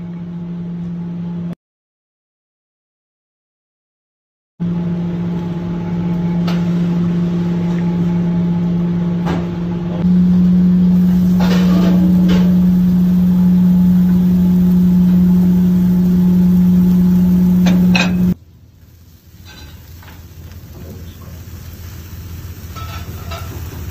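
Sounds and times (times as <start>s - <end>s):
electric motor hum: 4.6s - 18.4s.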